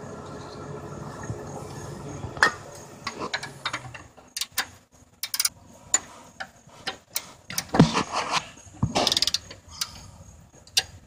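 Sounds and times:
low hum: 0:00.0 - 0:04.2
ratchet metal clicks: 0:03.3 - 0:07.8, 0:08.9 - 0:11.0.

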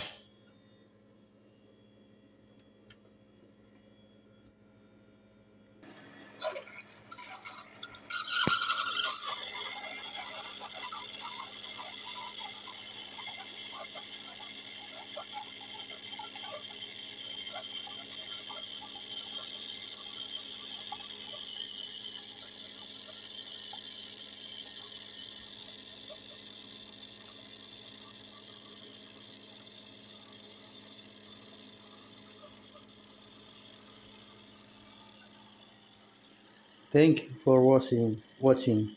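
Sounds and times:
coffee maker hissing and gurgling: 0:00.0 - 0:00.2, 0:05.8 - 0:38.9.

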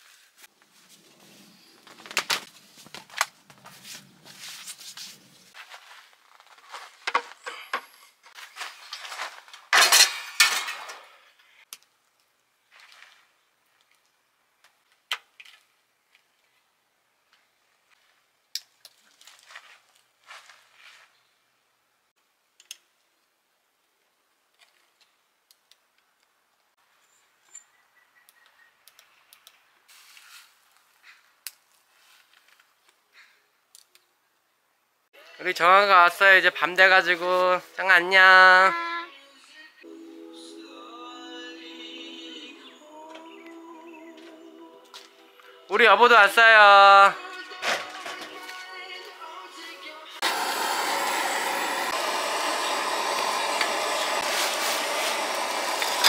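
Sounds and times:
faint small clicks: 0:22.6 - 0:23.3, 0:28.2 - 0:29.6, 0:33.7 - 0:34.1.

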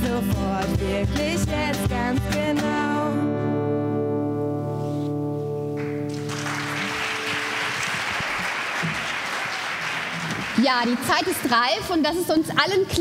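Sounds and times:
acoustic guitar chord ringing: 0:02.8 - 0:08.0
audience applauding: 0:05.8 - 0:12.0.

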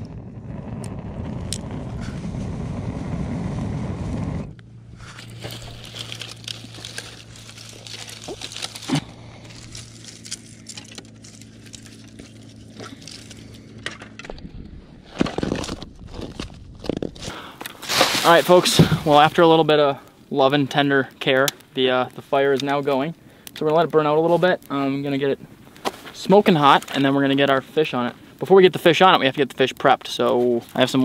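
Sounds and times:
loud low rushing noise: 0:00.0 - 0:05.8
steady low hum: 0:00.0 - 0:29.6
twigs crackling and snapping: 0:05.0 - 0:31.0.

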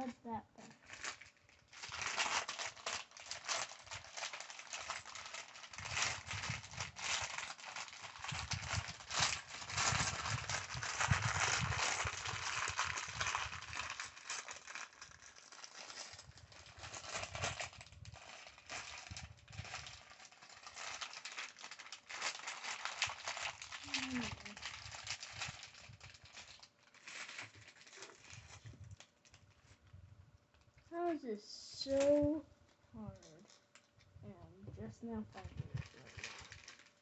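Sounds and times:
plastic bag crinkling: 0:00.0 - 0:30.8, 0:35.0 - 0:37.0
plastic pieces clattering: 0:00.8 - 0:29.0.

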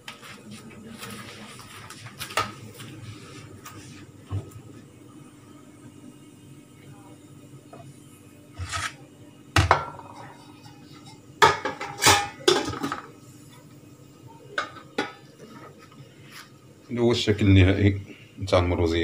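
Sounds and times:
dish scrape: 0:08.6 - 0:09.0
dishes and utensils clattering: 0:09.6 - 0:13.1.

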